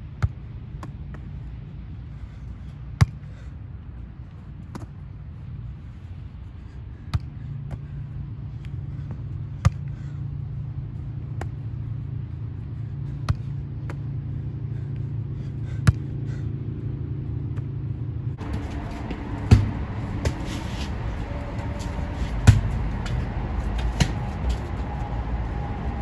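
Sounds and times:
low rumble: 3.6 - 26.0.

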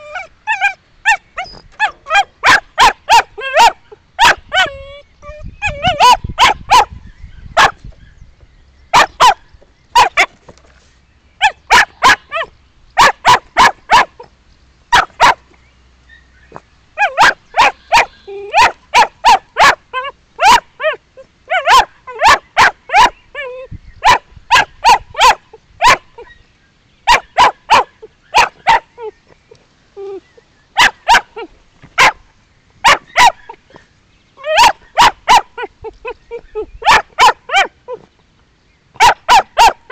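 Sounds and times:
puppy barking high-pitched: 0.0 - 4.8, 5.6 - 7.0, 7.6 - 7.8, 8.9 - 9.4, 10.0 - 10.3, 11.4 - 14.3, 14.9 - 15.4, 17.0 - 23.2, 24.0 - 26.3, 27.1 - 28.9, 30.8 - 32.2, 32.8 - 33.6, 34.4 - 35.7, 36.3 - 37.8, 39.0 - 39.9
puppy whining: 0.0 - 6.8, 17.0 - 24.2, 27.7 - 30.4, 34.4 - 38.1.

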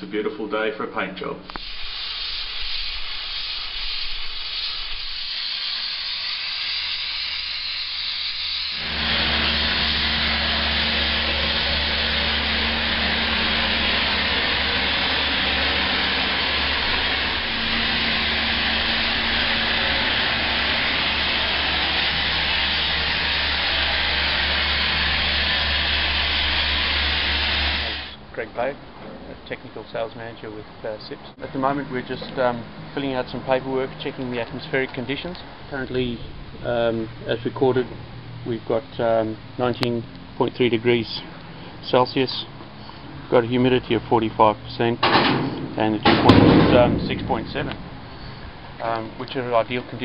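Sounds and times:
abrasive blasting hiss: 1.5 - 28.2
low hum: 8.7 - 28.0, 46.0 - 50.0.

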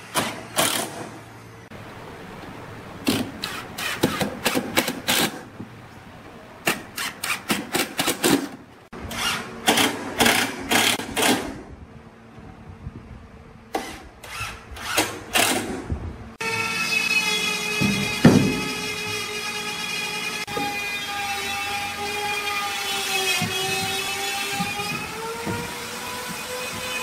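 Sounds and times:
impact driver hammering screws: 3.0 - 5.4.

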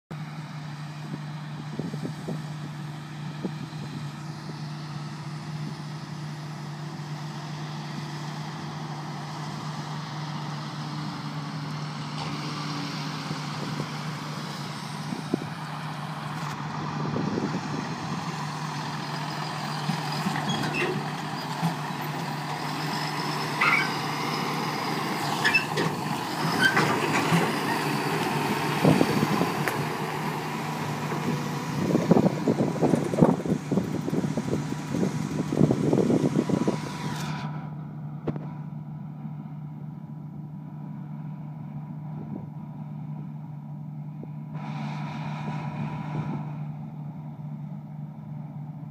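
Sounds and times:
combine harvester running: 0.1 - 48.9
tractor engine: 0.1 - 48.9
trailer knocks and rattles: 15.1 - 38.6.

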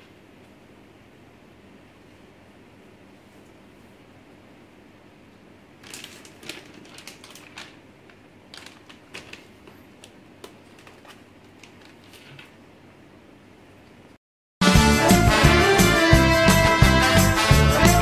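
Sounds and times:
faint room hum: 0.0 - 14.2
plastic snack packet crinkling: 5.8 - 12.6
laptop being handled: 8.6 - 12.6.

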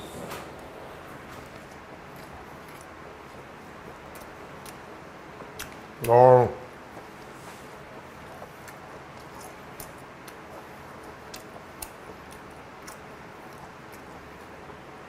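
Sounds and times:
wet mouth chewing clicks: 4.1 - 4.8, 5.5 - 5.8, 8.4 - 14.1.

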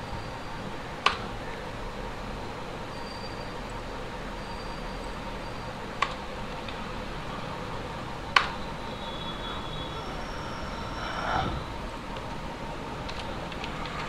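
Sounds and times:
microphone hiss: 9.9 - 13.5.

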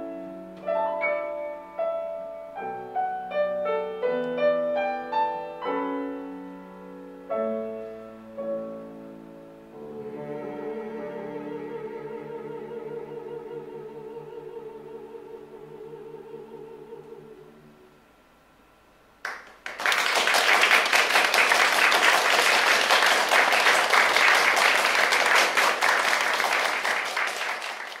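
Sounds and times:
vocal quartet singing: 9.7 - 17.9
audience applause: 19.2 - 28.0.

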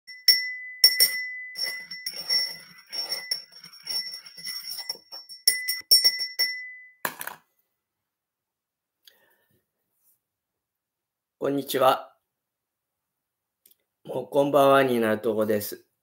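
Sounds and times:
small bell jingling: 0.1 - 7.0.

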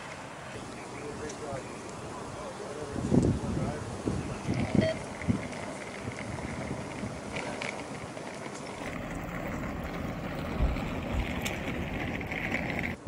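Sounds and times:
idling vehicles rumbling: 0.0 - 13.0
dull low thumps: 9.0 - 12.0.

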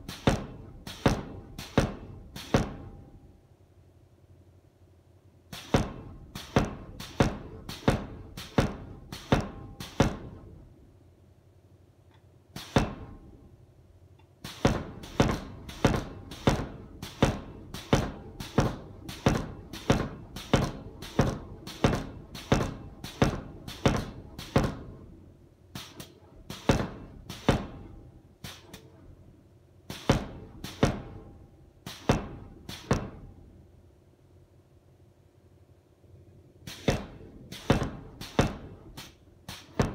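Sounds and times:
power hammer striking steel: 0.0 - 3.2, 5.5 - 10.6, 12.6 - 13.5, 14.4 - 29.2, 29.9 - 33.5, 36.7 - 39.9.

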